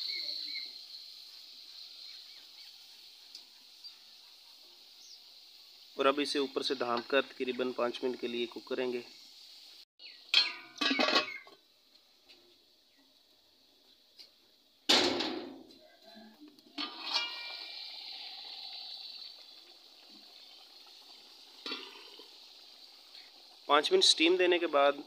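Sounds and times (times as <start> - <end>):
faint steady hiss: 0.0 - 25.0
metal lid clanking on pot: 10.3 - 11.6, 16.8 - 17.6.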